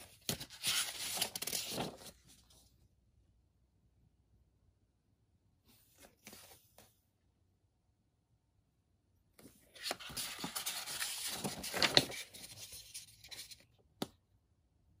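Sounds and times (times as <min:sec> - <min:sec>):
paper page turning: 0:00.0 - 0:02.6, 0:09.7 - 0:13.6.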